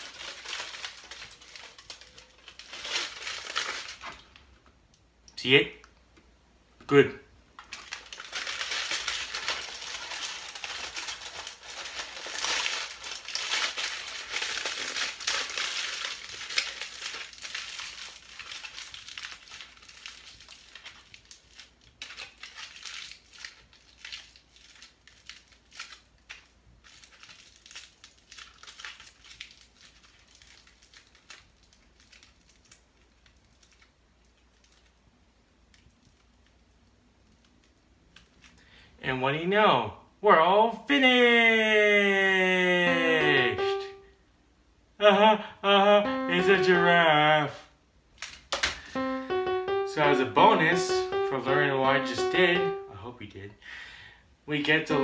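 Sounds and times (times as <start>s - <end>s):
aluminium foil crinkling: 0.0s - 4.5s, 7.6s - 38.7s, 48.1s - 49.1s.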